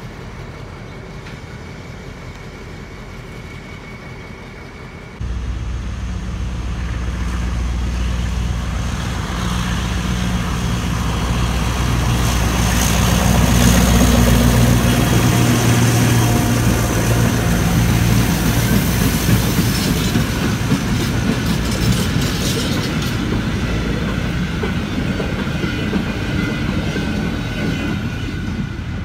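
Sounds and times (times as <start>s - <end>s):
locomotive engine hum: 0.0s - 29.0s.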